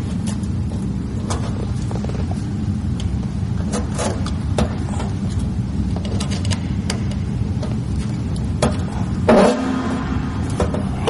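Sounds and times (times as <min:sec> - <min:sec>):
low rumble: 0:04.3 - 0:11.0.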